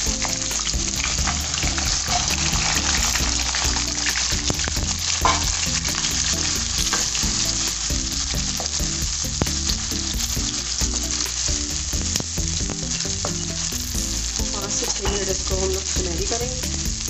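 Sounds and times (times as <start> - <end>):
onions sizzling in hot oil: 0.0 - 17.0
wooden spoon scraping a pan: 0.2 - 9.6.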